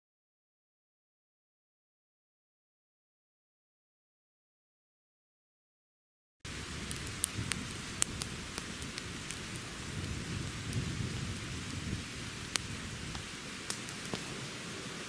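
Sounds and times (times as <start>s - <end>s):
campfire crackling and popping: 6.5s - 15.0s
low fire rumble: 6.5s - 15.0s.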